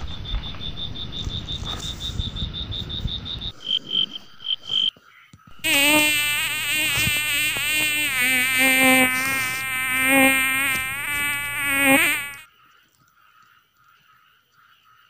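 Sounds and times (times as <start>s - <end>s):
insect wings buzzing: 5.5s - 12.4s.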